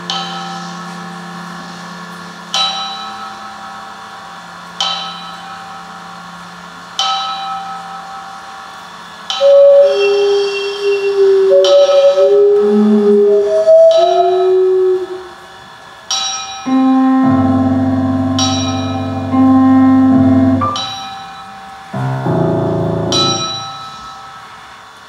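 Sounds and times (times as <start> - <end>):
bell-like struck piano notes: 0.0 - 6.3, 7.0 - 15.4, 16.1 - 24.8
long held tones: 9.2 - 15.8, 16.6 - 24.7
deep held chord: 16.7 - 24.2.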